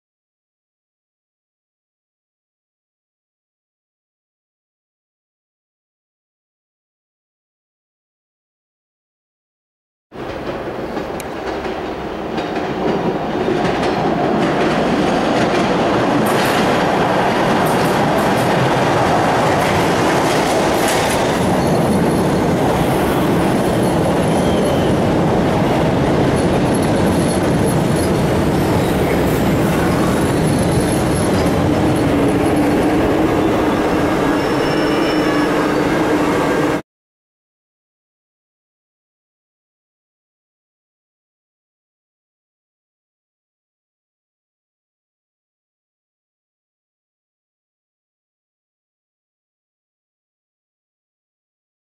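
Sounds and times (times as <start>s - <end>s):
subway train wheels rumbling: 10.2s - 36.8s.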